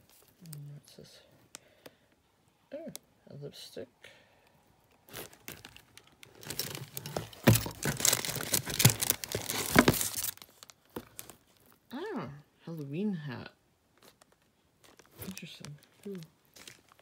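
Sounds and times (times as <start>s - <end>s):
packaging crinkling and rustling: 4.8s - 11.8s, 14.0s - 17.0s.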